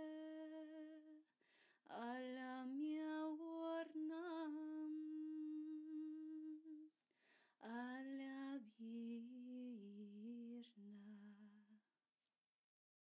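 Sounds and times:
woman singing wordless notes: 0.0 - 1.2, 1.9 - 6.9
woman breathing: 1.4 - 1.8, 7.1 - 7.6.

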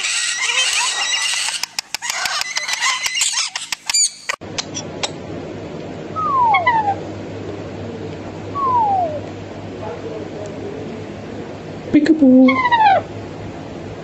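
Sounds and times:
parakeets chattering: 0.0 - 5.2, 6.2 - 7.0, 12.2 - 13.1.

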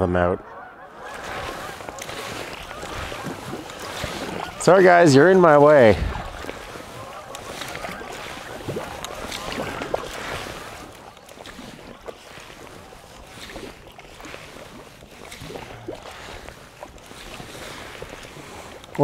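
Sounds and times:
water splashing and lapping: 0.5 - 19.0
kayak paddle strokes: 0.9 - 19.0
wind on microphone: 5.6 - 13.8.

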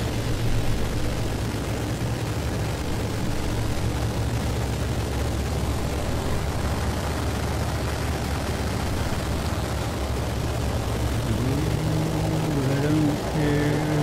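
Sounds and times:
radial engine and propeller: 0.0 - 14.0.

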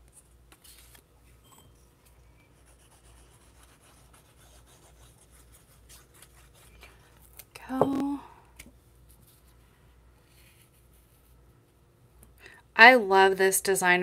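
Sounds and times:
paper rubbing and scratching: 2.5 - 7.4.

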